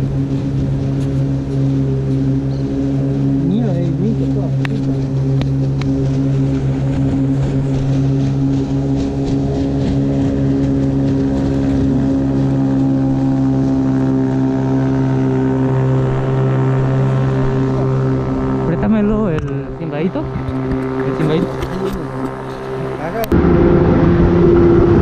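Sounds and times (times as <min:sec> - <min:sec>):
motor humming: 0:00.0 - 0:25.0.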